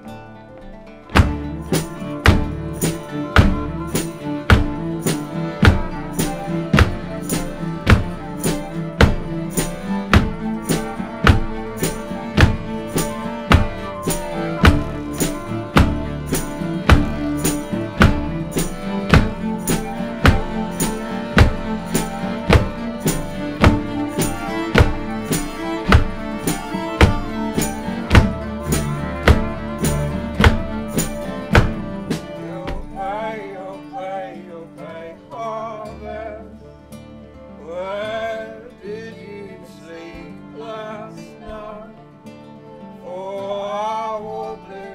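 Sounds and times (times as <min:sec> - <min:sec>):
acoustic folk band playing: 0:00.0 - 0:44.9
steady percussive beat: 0:01.1 - 0:33.0.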